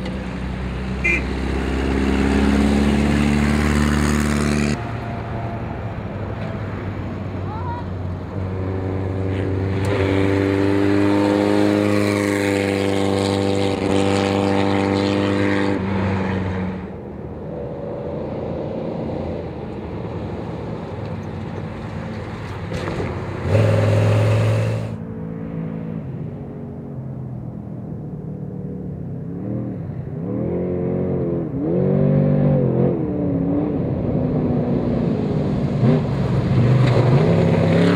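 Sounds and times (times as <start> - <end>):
race car engine at high revs: 8.3 - 16.9, 22.7 - 25.0, 29.3 - 37.9
distant truck engine: 20.5 - 25.0.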